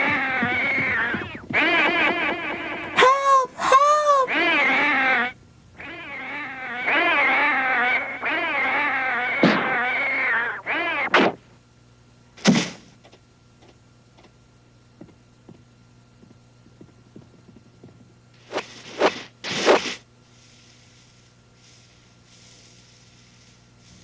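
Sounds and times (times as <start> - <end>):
short animal cry: 3.0 - 11.3.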